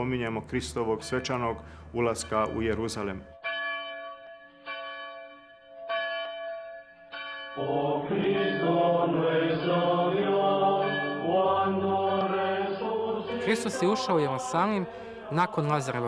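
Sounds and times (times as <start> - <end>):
church bell striking: 0.7 - 16.0
choir chanting: 7.6 - 16.0.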